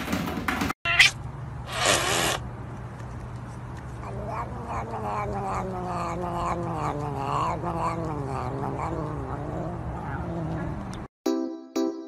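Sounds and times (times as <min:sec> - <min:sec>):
cat yowling: 0:00.9 - 0:01.2, 0:04.0 - 0:11.0.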